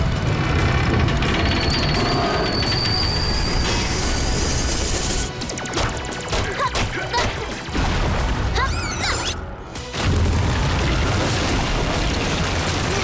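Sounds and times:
cartoon machine rattling and clanking: 0.3 - 8.0
music: 0.4 - 13.0.

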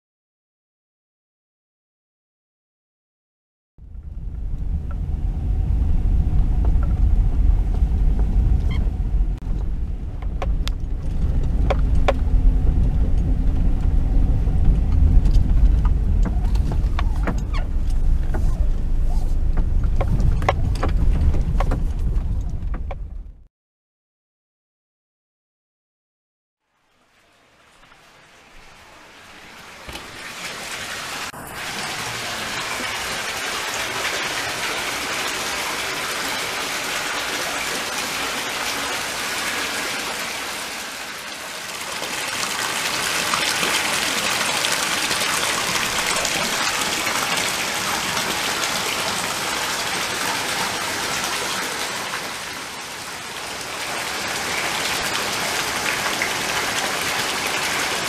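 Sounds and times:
water splashing into a bath: 29.8 - 52.6.

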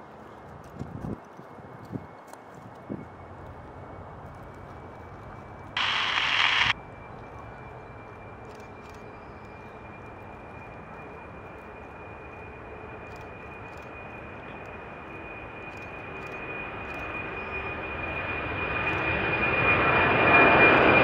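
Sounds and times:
jet rumble with high whine: 0.0 - 21.0
loud burst of hiss: 5.8 - 6.7.

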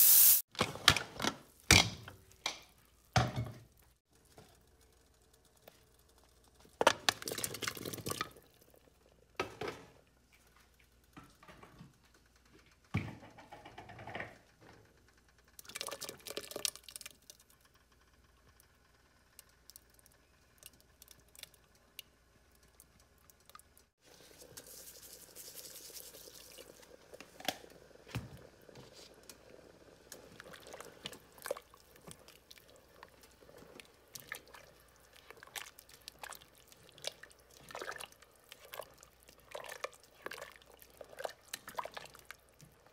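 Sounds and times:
broth bubbling at a boil: 19.3 - 42.9.

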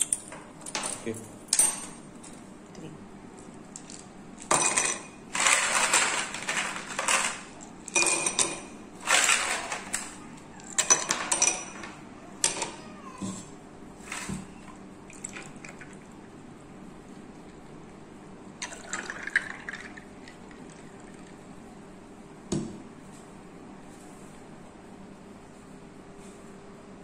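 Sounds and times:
ice cubes clinking in glass: 3.8 - 10.0, 15.1 - 16.0, 18.6 - 21.3.

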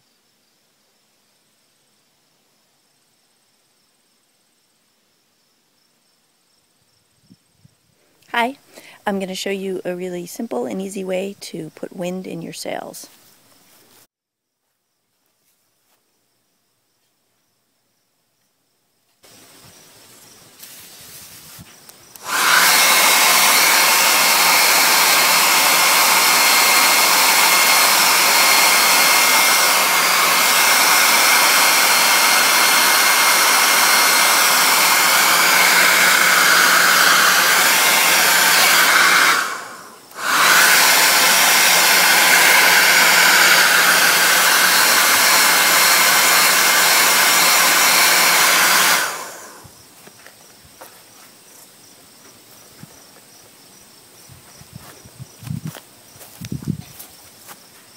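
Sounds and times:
blow dryer running: 22.1 - 49.7.

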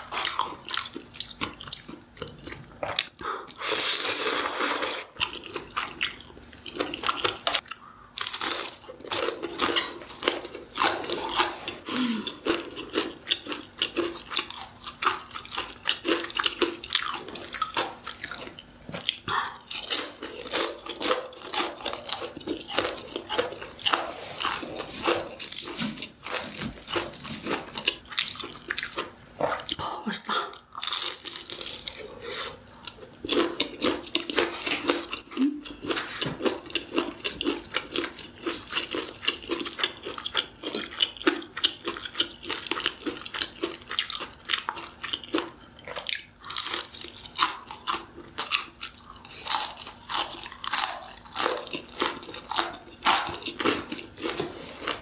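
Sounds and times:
person chewing crunchy food: 0.0 - 55.0.

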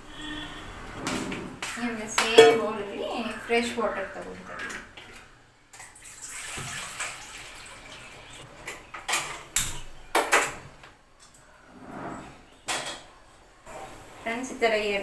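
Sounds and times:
steel vessels clanking: 2.3 - 2.8
water pouring into a steel vessel: 5.9 - 8.4.

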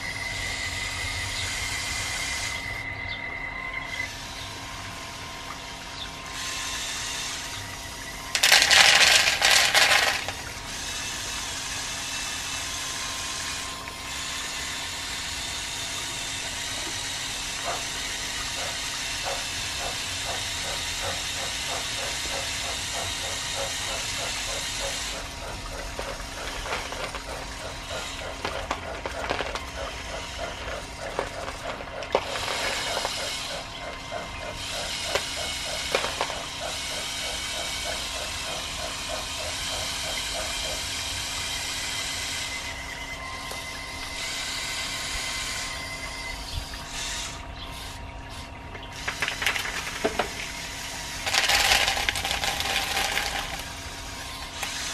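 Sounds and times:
electric motors whirring: 3.8 - 54.9
bucket scraping through beans: 8.3 - 10.5, 25.2 - 33.8, 49.0 - 54.9
dried beans rattling into plastic tub: 8.3 - 10.5, 49.1 - 50.4, 51.2 - 53.8
gear train clicking: 8.3 - 10.6, 17.6 - 41.0, 48.9 - 54.9.

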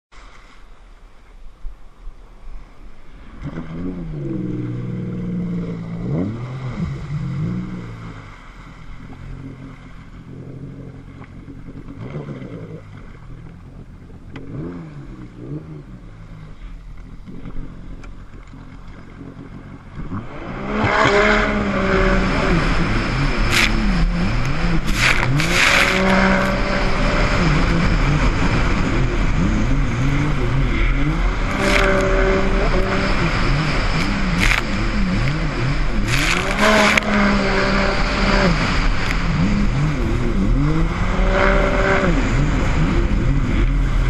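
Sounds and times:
jet ski engine revving: 3.1 - 44.0
splashing water: 22.8 - 27.8, 29.7 - 39.9.

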